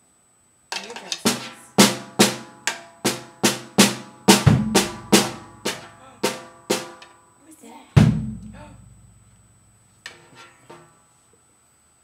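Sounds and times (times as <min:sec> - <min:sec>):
drum kit hits: 0:01.1 - 0:07.2, 0:08.0 - 0:11.0.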